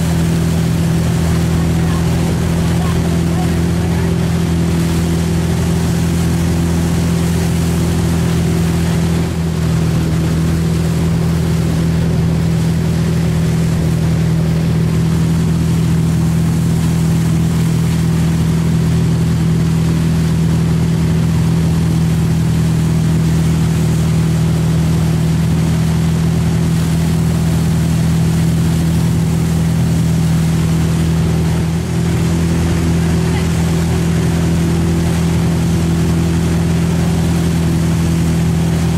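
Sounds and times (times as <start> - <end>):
boat engine droning: 0.0 - 38.9
wake water rushing: 0.0 - 38.9.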